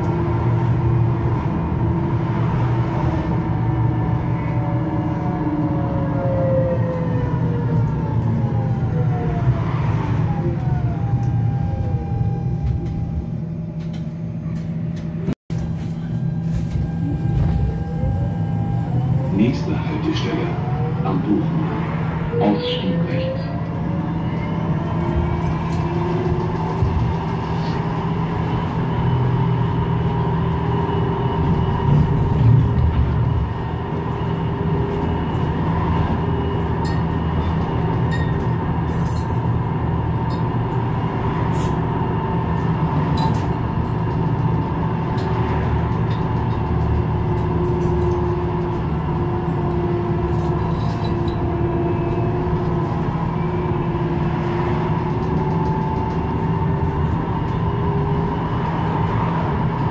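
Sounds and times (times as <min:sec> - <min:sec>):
tram rumble: 0:00.0 - 0:59.9
continuous whine: 0:07.2 - 0:59.9.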